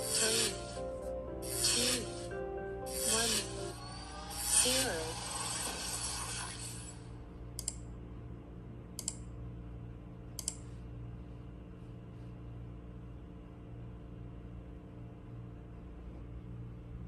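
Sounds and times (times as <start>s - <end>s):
faint steady hum: 0.0s - 17.0s
hiss: 1.5s - 2.3s.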